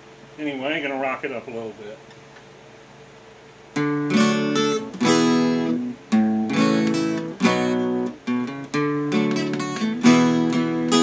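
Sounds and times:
acoustic guitar strummed: 3.7 - 11.0.

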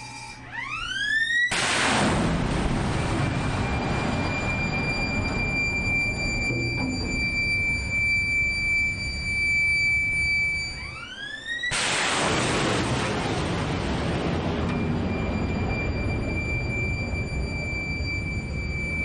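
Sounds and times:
short rising whine: 0.0 - 12.7, 14.4 - 19.0
gatling gun firing burst: 1.5 - 2.5, 11.7 - 13.4.

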